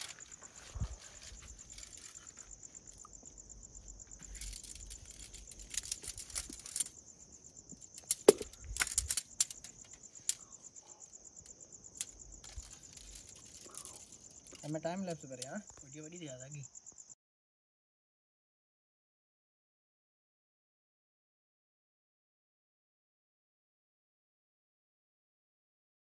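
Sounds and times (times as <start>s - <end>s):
tent fabric rustling: 0.0s - 6.9s
tent poles clacking: 0.0s - 7.0s, 7.7s - 10.5s, 11.9s - 15.7s
crickets trilling: 0.0s - 17.2s.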